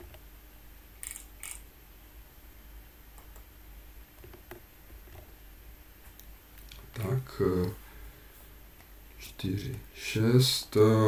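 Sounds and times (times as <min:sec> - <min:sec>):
faint steady hum: 0:00.0 - 0:11.0
computer mouse clicking: 0:01.0 - 0:01.6, 0:03.2 - 0:03.5.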